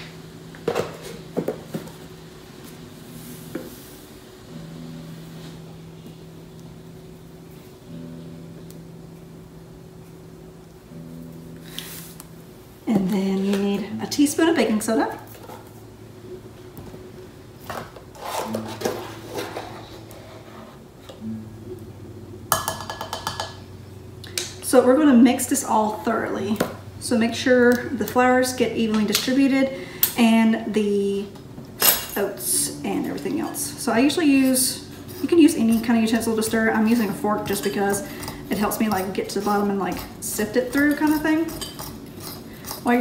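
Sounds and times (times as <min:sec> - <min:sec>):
steady low hum: 0:00.0 - 0:43.0
metal teaspoon scraping: 0:34.3 - 0:43.0.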